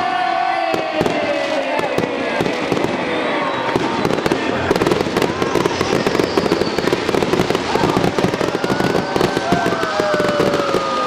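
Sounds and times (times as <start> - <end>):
fireworks crackling and popping: 0.0 - 11.0
fireworks whistling: 0.0 - 11.0.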